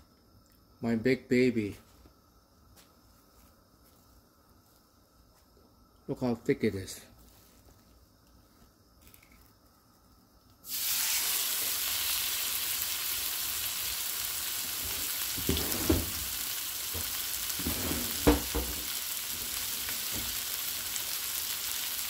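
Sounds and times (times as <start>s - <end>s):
steak sizzling in a frying pan: 10.7s - 22.0s.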